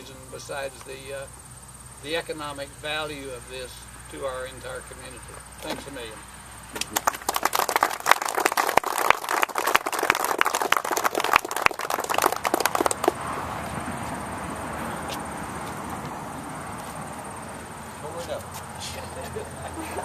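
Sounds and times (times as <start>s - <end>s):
outdoor background hiss: 0.0s - 20.0s
crowd applauding: 6.8s - 13.2s.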